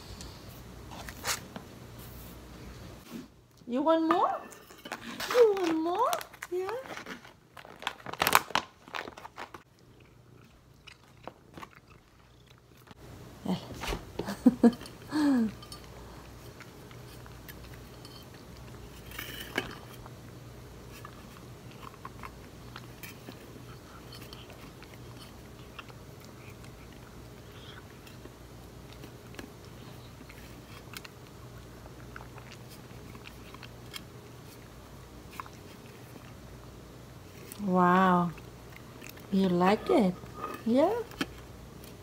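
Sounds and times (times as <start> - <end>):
cat chewing wet food: 9.7 - 13.0, 20.9 - 37.5.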